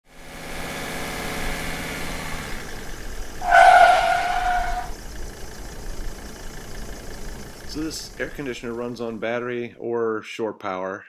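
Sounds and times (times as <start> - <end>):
vehicle engine running: 0.1 - 9.6
horn honk: 3.4 - 5.0.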